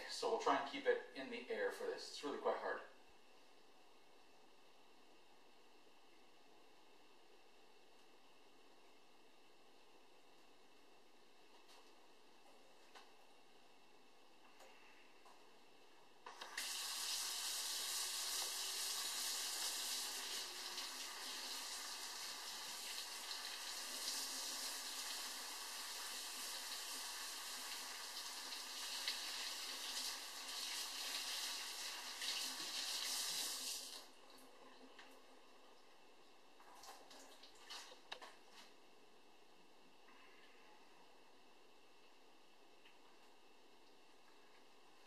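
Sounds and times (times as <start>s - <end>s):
faucet running into sink: 16.5s - 34.1s.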